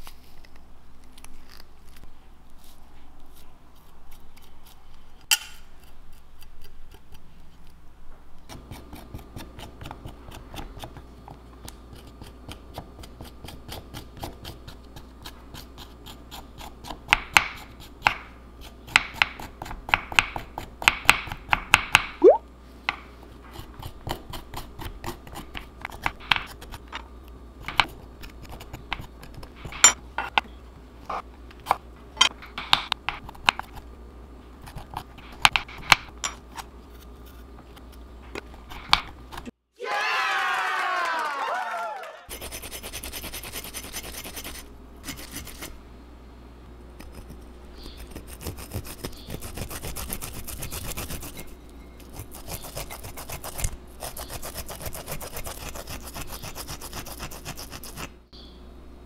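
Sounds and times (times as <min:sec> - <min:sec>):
spoon scraping ginger: 0:47.0 - 0:58.1.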